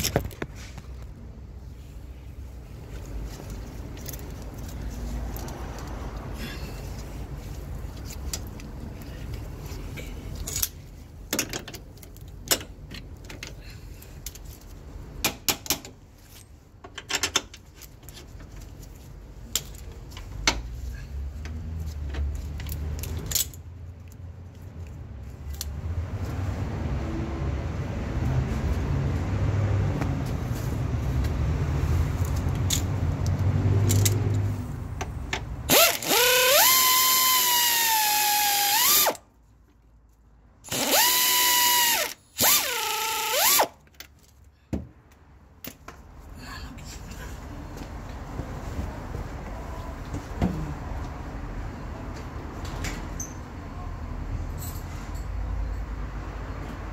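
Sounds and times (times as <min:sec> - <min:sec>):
power wrench whining: 0:35.7 - 0:39.2, 0:40.7 - 0:43.8.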